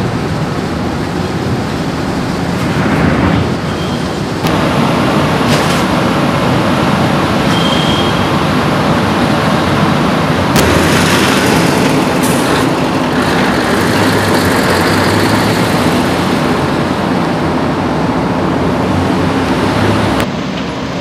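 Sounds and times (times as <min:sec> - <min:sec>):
road and air noise: 0:00.0 - 0:21.0
tanker truck driving past: 0:04.4 - 0:21.0.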